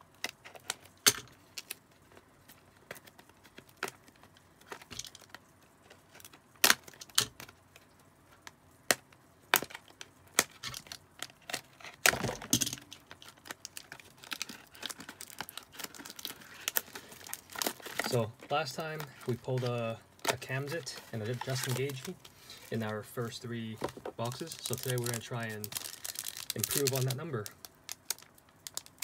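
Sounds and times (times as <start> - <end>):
plastic wrap crinkling: 9.6 - 29.0.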